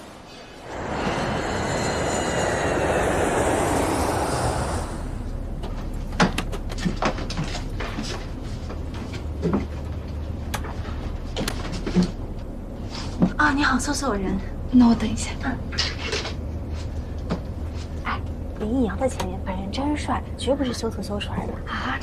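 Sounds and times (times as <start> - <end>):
loud rushing noise: 0.0 - 5.6
passenger cabin hum: 0.0 - 22.0.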